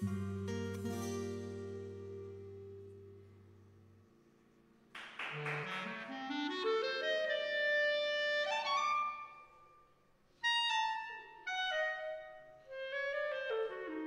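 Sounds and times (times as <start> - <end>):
clarinet melody: 5.2 - 14.0.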